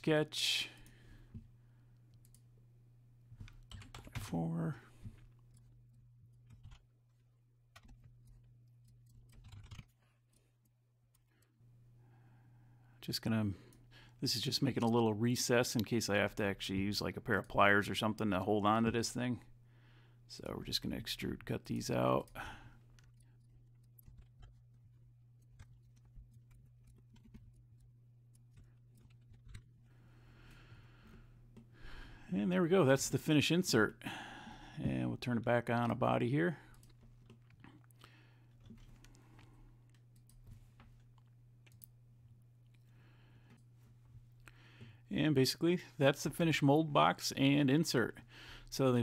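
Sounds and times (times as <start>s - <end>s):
low steady hum: 0.0s - 49.0s
computer mouse clicks: 6.3s - 6.9s, 7.7s - 10.5s.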